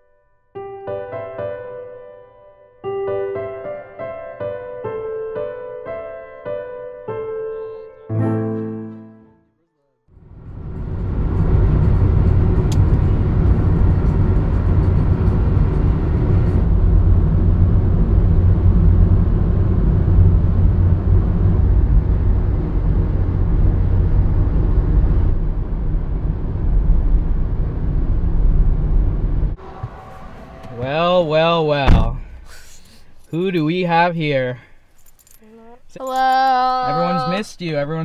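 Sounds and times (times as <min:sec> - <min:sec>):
car cabin road and engine rumble: 0:10.2 - 0:37.8.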